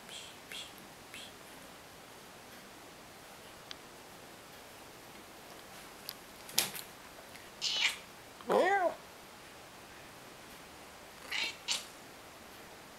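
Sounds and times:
cat meowing: 7.6 - 9.0, 11.2 - 11.9.

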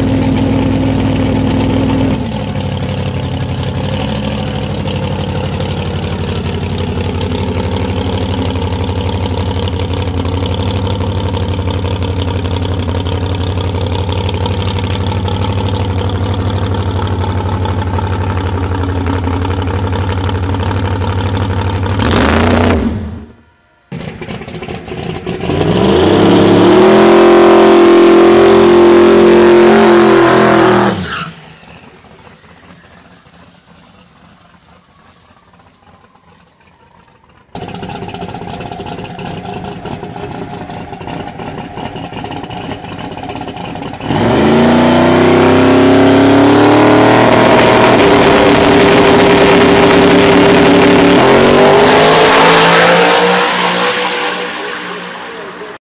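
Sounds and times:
drag racing engines revving: 0.0 - 36.5, 37.2 - 55.8.

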